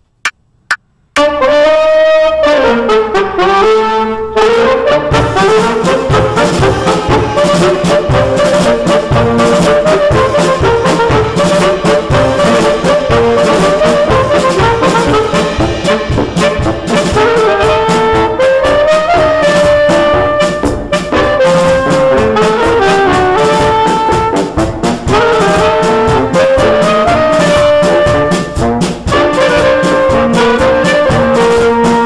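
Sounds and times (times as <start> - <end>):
saxophones playing in harmony: 1.2 - 32.0
percussion: 5.1 - 32.0.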